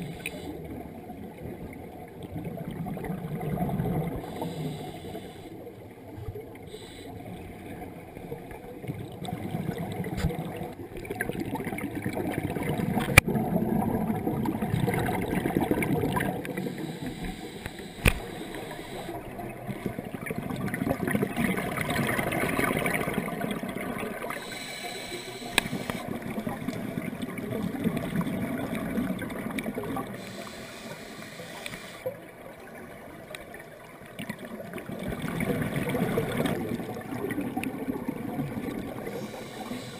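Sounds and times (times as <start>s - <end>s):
underwater regulator bubbles: 7.7s - 33.0s, 34.2s - 39.9s.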